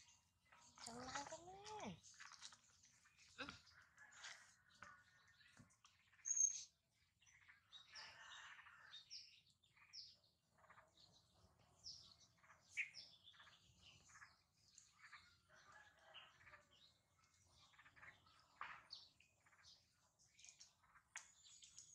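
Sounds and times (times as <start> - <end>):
faint bird chirping: 0.0 - 21.9.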